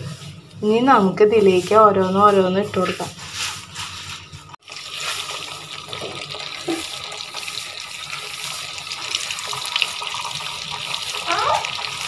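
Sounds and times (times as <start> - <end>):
cauliflower deep-frying in hot oil: 3.3 - 12.0.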